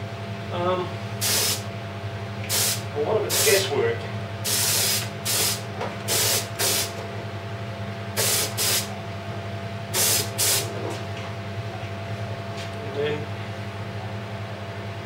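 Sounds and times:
steady low hum: 0:00.0 - 0:15.0
spray gun hissing bursts: 0:01.2 - 0:01.6, 0:02.5 - 0:03.6, 0:04.4 - 0:06.9, 0:08.2 - 0:08.9, 0:10.0 - 0:10.7.

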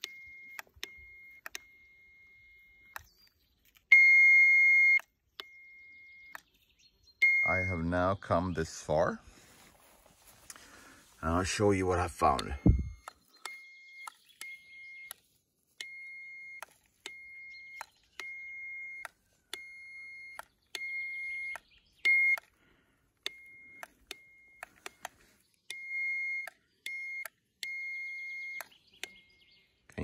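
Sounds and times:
cable tracker high beep: 0:03.9 - 0:06.4, 0:07.2 - 0:08.0, 0:12.3 - 0:15.2, 0:15.8 - 0:22.4, 0:23.3 - 0:25.0, 0:25.7 - 0:28.7.

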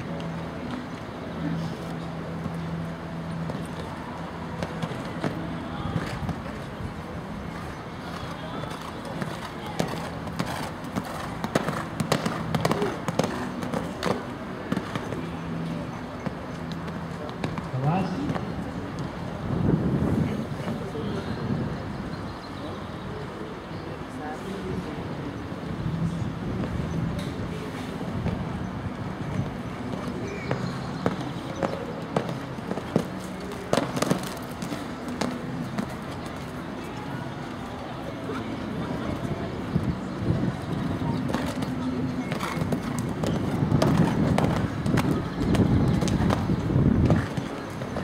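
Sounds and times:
horse hoofbeats thudding: 0:08.8 - 0:15.3, 0:29.3 - 0:36.5, 0:40.9 - 0:48.0.

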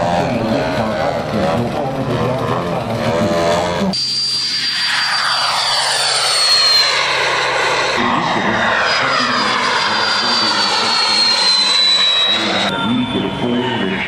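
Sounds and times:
rushing noise of passing aircraft: 0:00.0 - 0:14.0
model jet engine whistle: 0:03.9 - 0:14.0.

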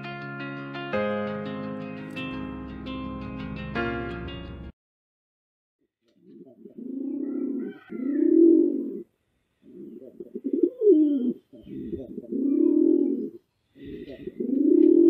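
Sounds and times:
dove cooing: 0:06.2 - 0:15.0.

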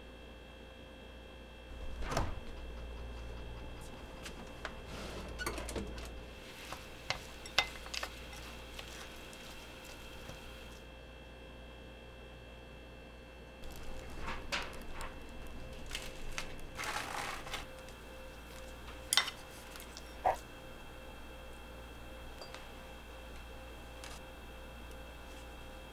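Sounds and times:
faint steady hum: 0:00.0 - 0:25.9
chopsticks stirring wet filling: 0:03.8 - 0:10.8, 0:18.5 - 0:20.4.

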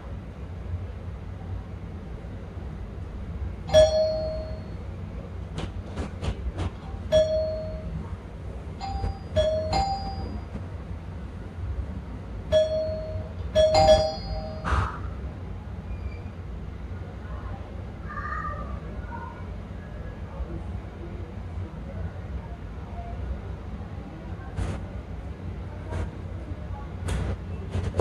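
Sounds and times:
two-tone doorbell chime: 0:03.7 - 0:04.8, 0:07.1 - 0:08.0, 0:08.8 - 0:10.5, 0:12.5 - 0:14.7.

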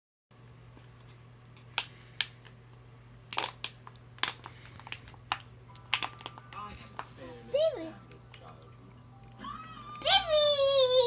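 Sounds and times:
plastic bottle crackling: 0:03.3 - 0:07.0.

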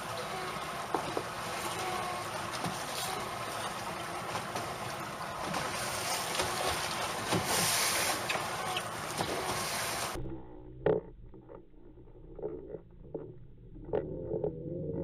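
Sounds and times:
sea noise: 0:00.0 - 0:10.6.

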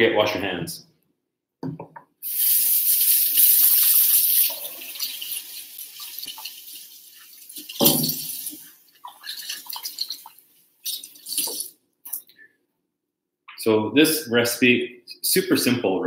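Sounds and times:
hands washed under water: 0:02.2 - 0:12.2
tap running into sink: 0:07.6 - 0:08.5.

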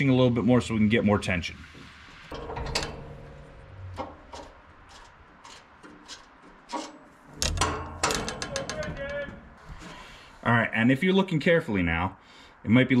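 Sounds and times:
light metal clicks and scrapes: 0:01.8 - 0:10.2.

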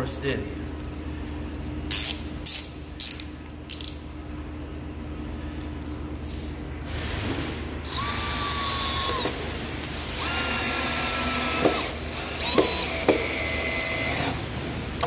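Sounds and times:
cordless drill whine: 0:07.8 - 0:09.4, 0:10.0 - 0:14.4.

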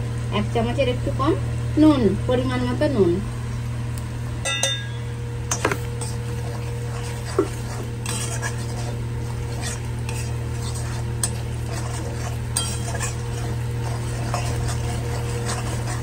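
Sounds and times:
light sizzle: 0:00.0 - 0:16.0
steady low hum: 0:00.0 - 0:16.0
metal spatula scraping pan: 0:05.5 - 0:16.0.

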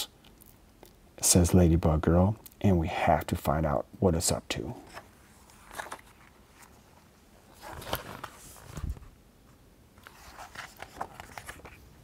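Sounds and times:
book pages rustling: 0:04.8 - 0:09.2, 0:10.0 - 0:12.0.

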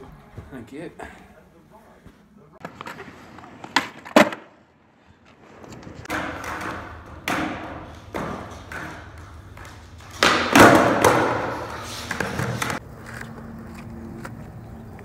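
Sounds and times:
skateboard wheels rolling on concrete: 0:02.6 - 0:15.0
skateboard clacking on concrete: 0:03.6 - 0:04.5, 0:06.0 - 0:15.0.

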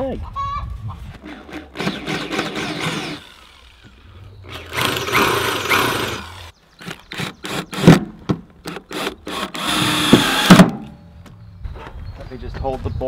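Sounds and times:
power drill boring into wood: 0:01.2 - 0:07.9, 0:08.7 - 0:10.7.

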